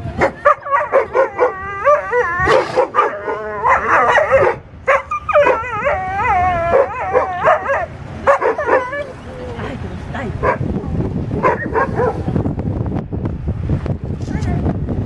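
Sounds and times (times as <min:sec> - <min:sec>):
dog barking and yelping: 0:00.1 - 0:09.7, 0:10.3 - 0:12.3.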